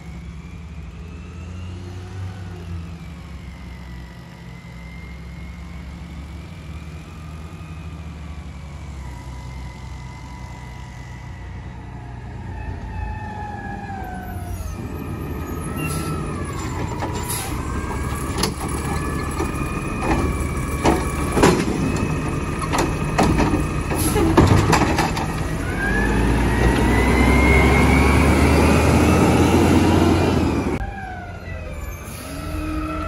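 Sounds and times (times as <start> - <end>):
garbage truck engine whining: 0.0 - 33.0
cart banging into hopper: 18.2 - 25.5.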